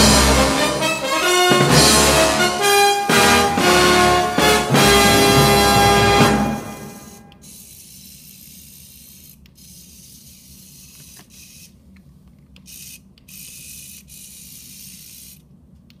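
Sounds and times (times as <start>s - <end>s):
toy electric motor whirring: 7.4s - 11.8s, 12.6s - 15.5s.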